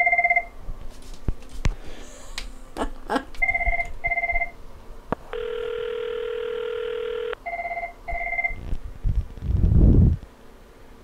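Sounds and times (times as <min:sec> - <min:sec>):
phone ringtone double beeps: 0:00.0 - 0:00.5, 0:03.4 - 0:04.6, 0:05.4 - 0:08.6
steady ringback tone: 0:03.4 - 0:04.6, 0:05.3 - 0:08.6.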